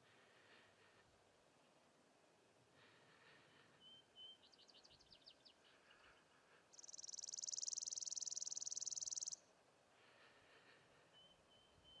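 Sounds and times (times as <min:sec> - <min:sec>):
quick high bird chirps: 0:06.7 - 0:09.4
sparrow dry rapid trill: 0:06.7 - 0:09.4.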